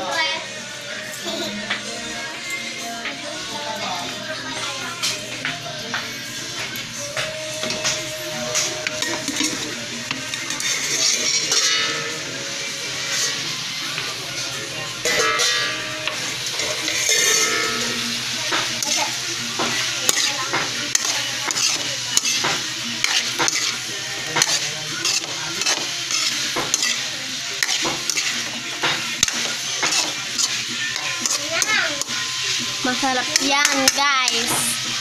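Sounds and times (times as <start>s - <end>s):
food sizzling: 0.0s - 35.0s
spatula scraping a wok: 10.5s - 12.1s, 15.1s - 18.1s, 18.7s - 32.7s.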